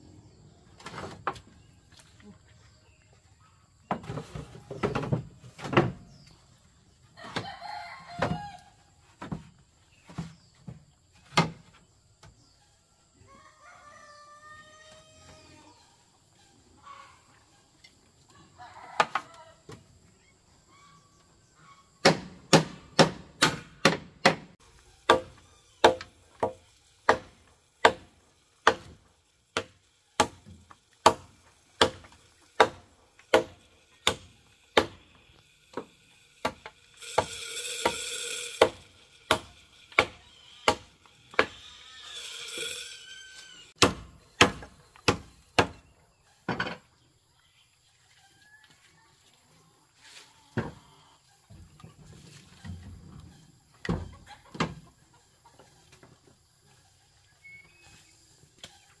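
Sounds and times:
machete chopping bamboo: 0:22.0 - 0:37.4, 0:38.5 - 0:41.6, 0:43.8 - 0:45.9
high-pitched rasping: 0:24.6 - 0:43.8.

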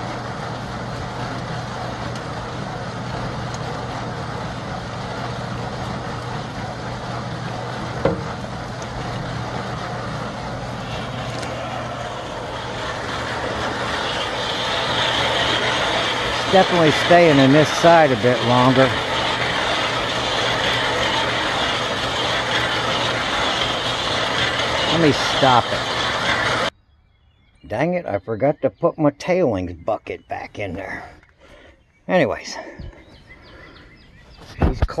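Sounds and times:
compost tumbling in mesh drum: 0:00.0 - 0:26.7
steady motor hum: 0:00.0 - 0:26.8, 0:29.9 - 0:35.0.

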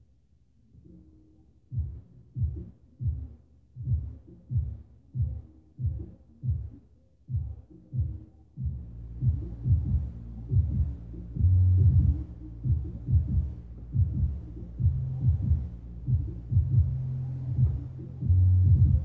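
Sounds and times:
heavy low thuds: 0:08.6 - 0:19.0
steady low rumble: 0:08.6 - 0:19.0.

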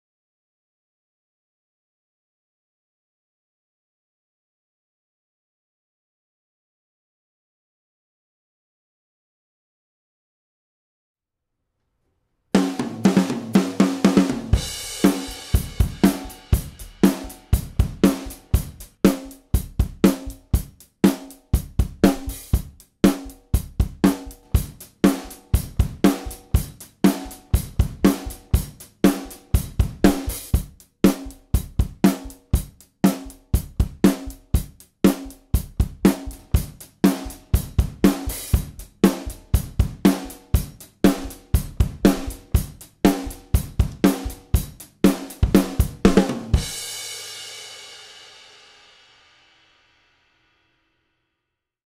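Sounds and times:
drum kit groove: 0:12.6 - 0:49.7.

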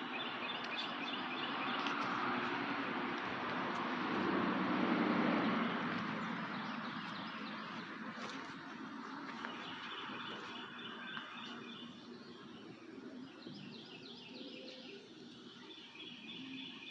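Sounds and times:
steady rushing hum: 0:00.0 - 0:14.2.

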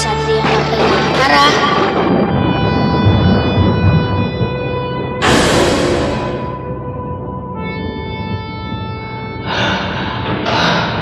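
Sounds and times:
noisy crash-like hit: 0:05.2 - 0:06.8.

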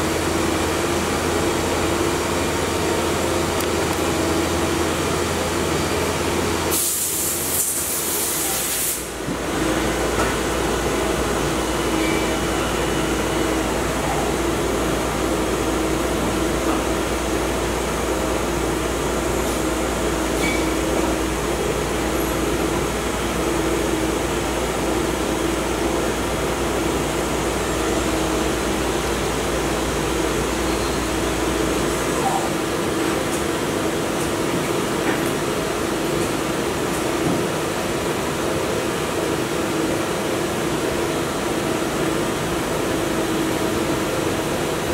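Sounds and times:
loud hiss: 0:06.7 - 0:09.1.

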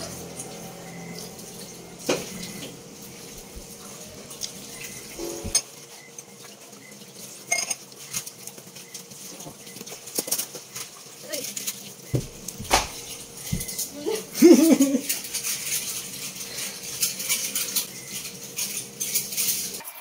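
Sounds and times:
dishes clinking in a sink: 0:07.4 - 0:08.2.

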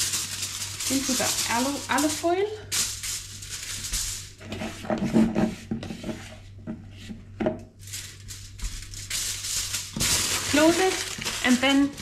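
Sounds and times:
aluminium foil crinkling: 0:00.0 - 0:04.6, 0:07.8 - 0:12.0.

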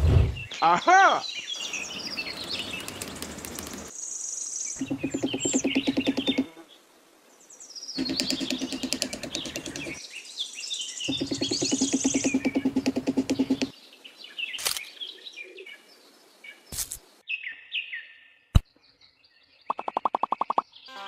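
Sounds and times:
birds chirping: 0:00.2 - 0:06.7, 0:07.4 - 0:21.0
hammer tapping wooden posts: 0:04.8 - 0:06.5, 0:08.0 - 0:10.0, 0:11.1 - 0:13.7.

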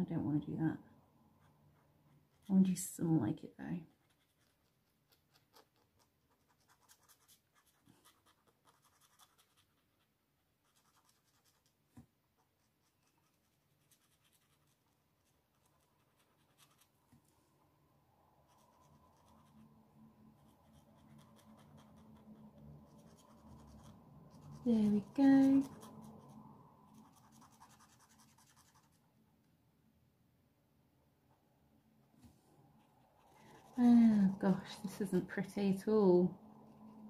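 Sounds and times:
faint low hum: 0:00.0 - 0:37.0
pen scratching on paper: 0:03.9 - 0:10.0, 0:10.6 - 0:11.8, 0:12.6 - 0:17.0, 0:18.5 - 0:19.6, 0:20.4 - 0:22.2, 0:22.9 - 0:26.3, 0:26.9 - 0:29.0, 0:32.8 - 0:35.2.

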